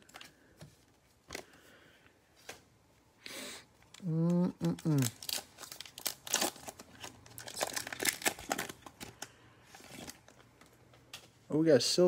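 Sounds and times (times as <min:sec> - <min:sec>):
foil wrapper tearing and crinkling: 0:03.8 - 0:10.4.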